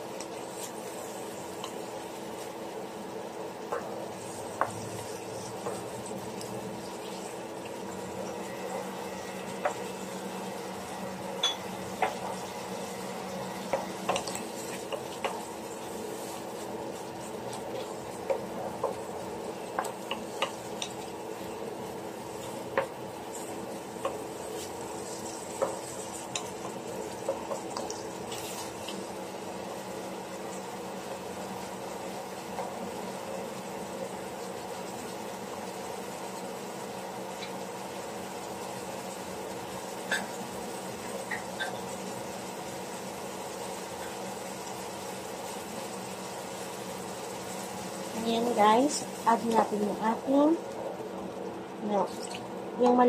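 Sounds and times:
steady hum: 0:00.0 - 0:53.0
wooden spoon scraping a pan: 0:04.1 - 0:07.4, 0:13.3 - 0:21.6, 0:22.3 - 0:29.0.

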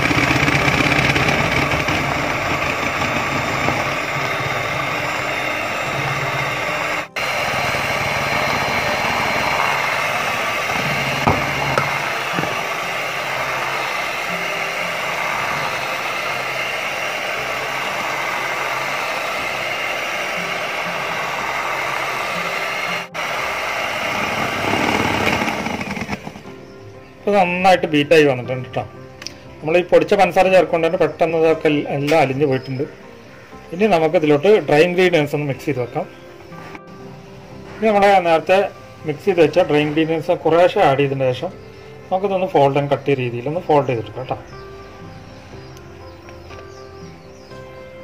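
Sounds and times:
electric hand mixer whirring: 0:00.0 - 0:26.6.

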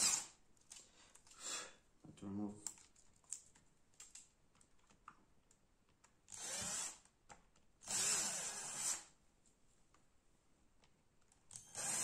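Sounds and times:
small drill drilling plastic: 0:00.0 - 0:00.4, 0:06.3 - 0:07.1, 0:07.8 - 0:09.1, 0:11.5 - 0:12.0.

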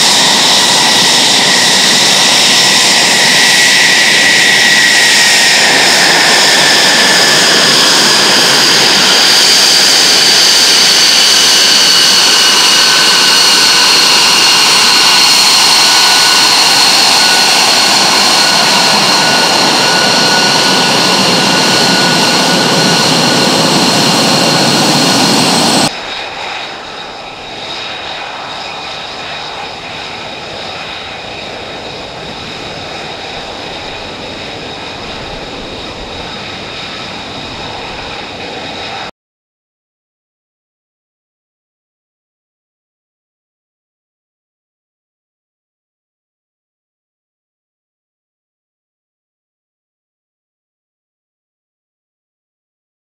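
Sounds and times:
jet engine whining: 0:00.0 - 0:39.1.

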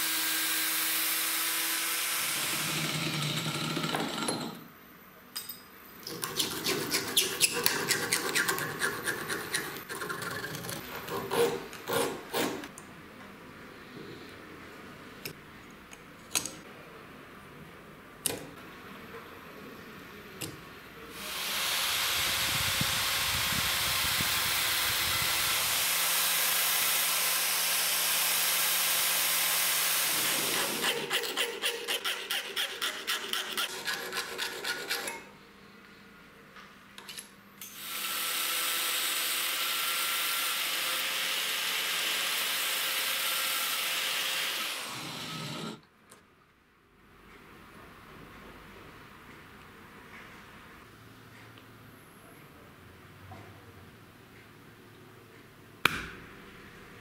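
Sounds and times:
power tool grinding steel: 0:29.7 - 0:35.2
hand file rasping metal: 0:30.3 - 0:35.3.

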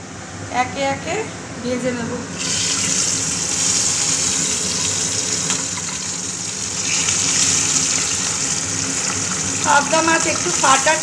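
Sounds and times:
fish frying in hot oil: 0:02.4 - 0:11.0.

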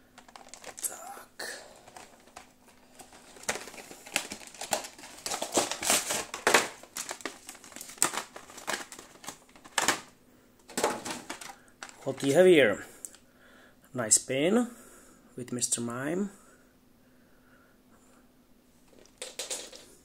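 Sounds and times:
plastic packaging crinkling: 0:00.0 - 0:12.5, 0:18.9 - 0:19.8.

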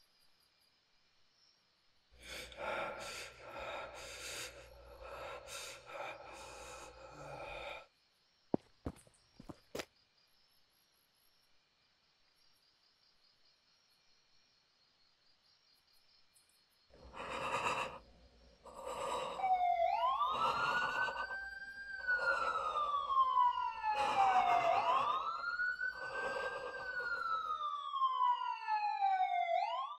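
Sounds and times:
crickets chirping: 0:00.0 - 0:29.4
person gasping breaths: 0:02.2 - 0:07.9, 0:17.0 - 0:27.7.

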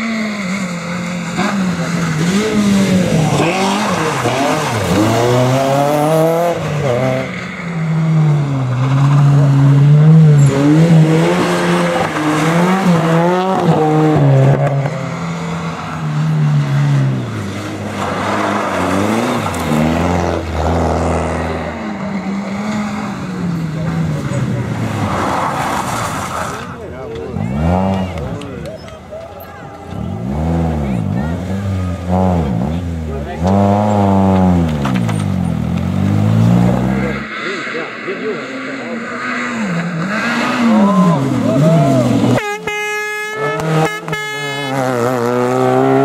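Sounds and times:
rally car engines revving hard: 0:00.0 - 0:46.0.

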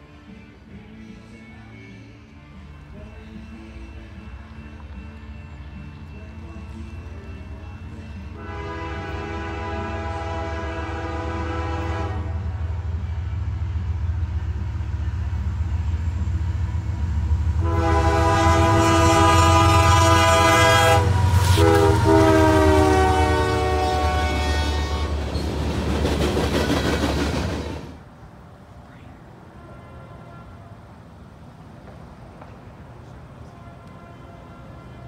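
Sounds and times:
locomotive engine rumble: 0:02.0 - 0:35.0
freight cars rattling past: 0:03.2 - 0:28.6
locomotive air horn blasts: 0:08.2 - 0:13.5, 0:17.6 - 0:25.3, 0:29.5 - 0:30.8, 0:33.4 - 0:35.0.

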